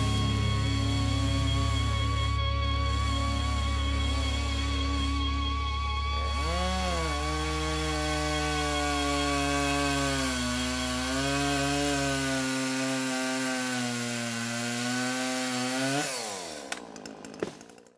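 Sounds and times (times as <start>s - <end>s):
low hum: 0.0s - 11.5s
chainsaw engine running: 0.0s - 17.9s.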